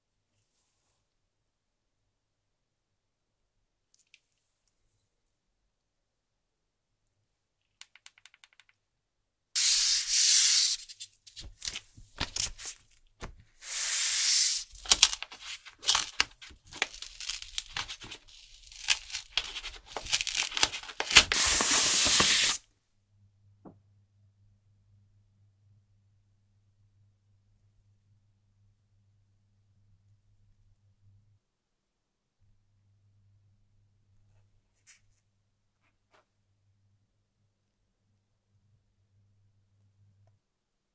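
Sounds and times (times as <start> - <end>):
small clicks: 7.6 - 8.9
paper sheet rustling and sliding: 9.6 - 17.0, 19.3 - 22.6.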